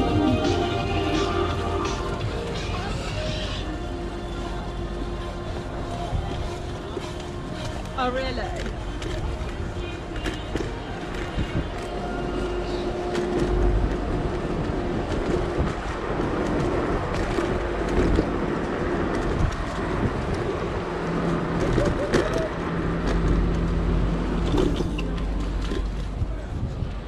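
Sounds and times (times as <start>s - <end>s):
road rumble: 0.0s - 27.0s
wind noise: 10.5s - 27.0s.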